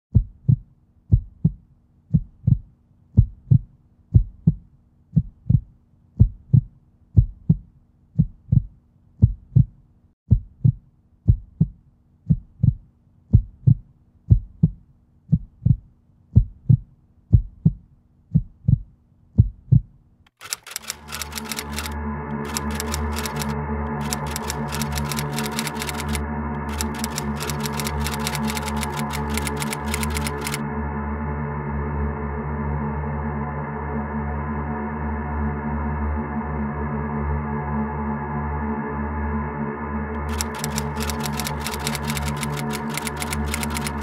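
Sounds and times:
heartbeat thumps: 0.1s - 20.0s.

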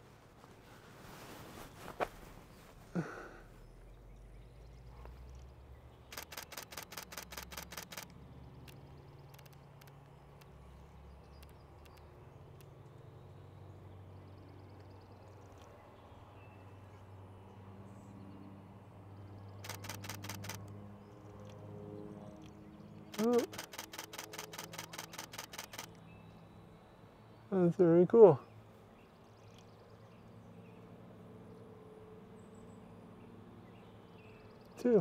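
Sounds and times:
low background hum: 0.0s - 35.0s
camera shutter clicking: 6.1s - 8.1s, 19.6s - 20.7s, 23.2s - 26.0s.

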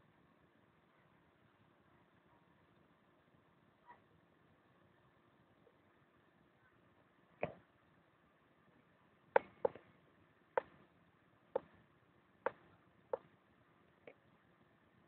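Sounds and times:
sharp knocks: 9.4s - 9.8s.

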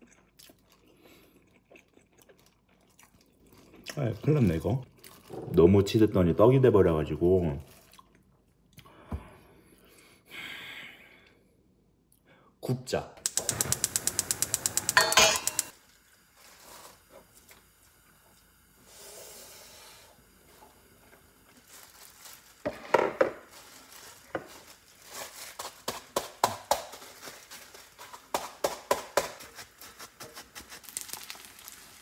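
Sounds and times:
plastic gloves crinkling: 15.8s - 17.1s, 21.4s - 32.0s.

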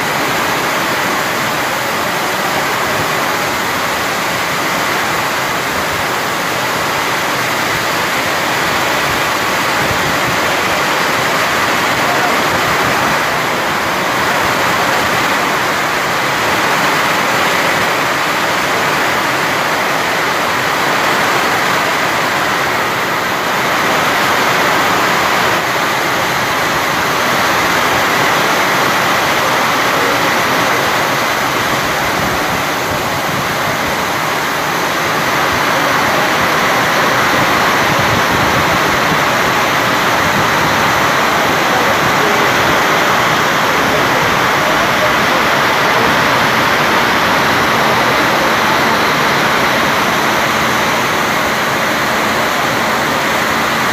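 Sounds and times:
heavy rain pouring: 0.0s - 53.9s.

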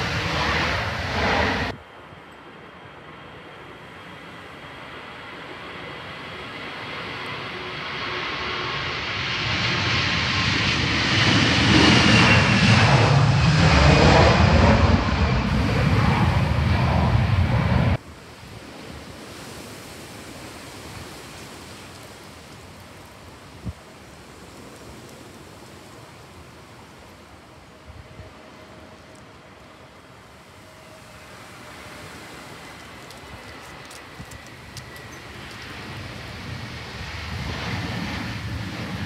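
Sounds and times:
jet engines passing: 0.0s - 39.0s
faint wind hiss: 18.0s - 39.0s.

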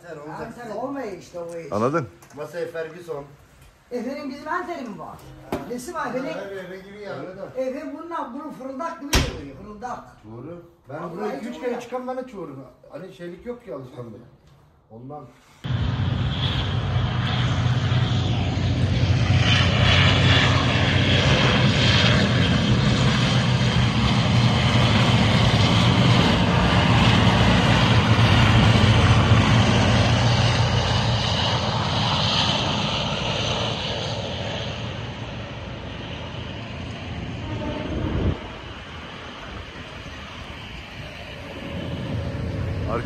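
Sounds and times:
airplane engine passing: 15.6s - 43.0s.

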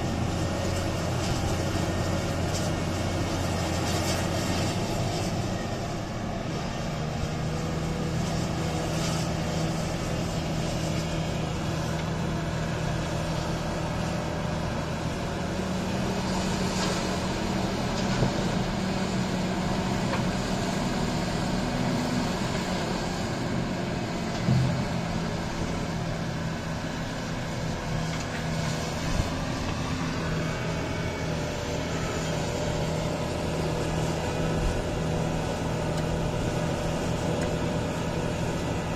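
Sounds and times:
diesel engines droning: 0.0s - 38.9s.

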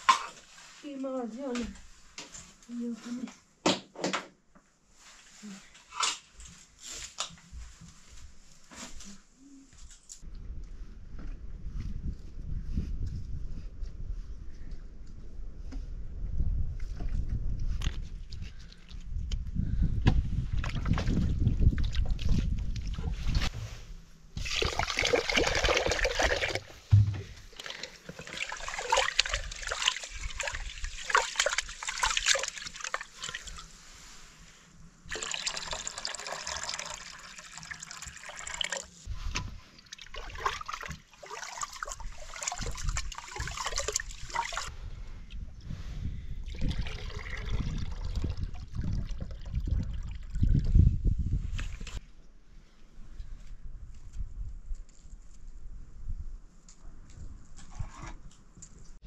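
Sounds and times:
water pouring and trickling: 24.4s - 33.8s, 35.1s - 44.7s, 46.4s - 52.0s.

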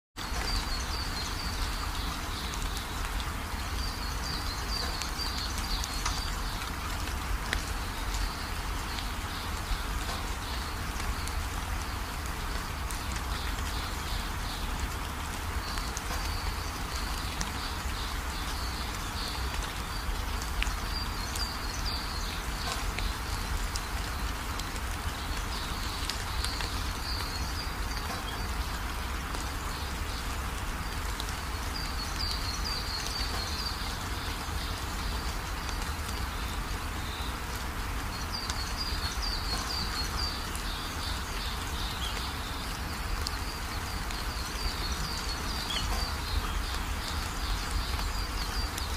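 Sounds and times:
birds twittering: 0.2s - 48.9s.

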